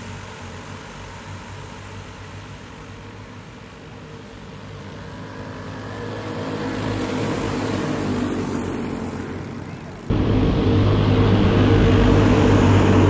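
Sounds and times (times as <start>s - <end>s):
go-kart engines at high revs: 4.5s - 13.0s.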